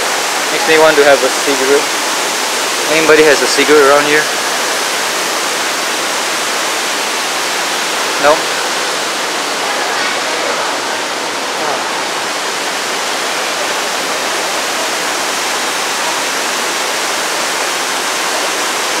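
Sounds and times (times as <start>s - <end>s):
heavy rainwater cascading: 0.0s - 19.0s.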